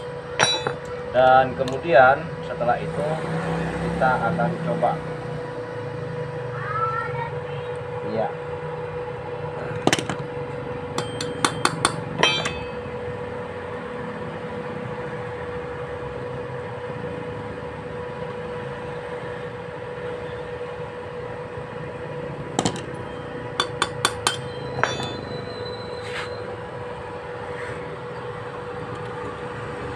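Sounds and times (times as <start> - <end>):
metal-on-metal clinks: 0.0 - 1.0, 11.0 - 12.9, 23.6 - 25.6.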